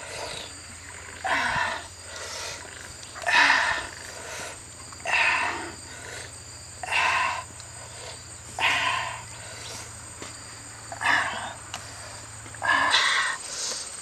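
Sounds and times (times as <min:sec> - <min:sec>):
animal calling: 0:00.0 - 0:09.9, 0:12.6 - 0:13.4.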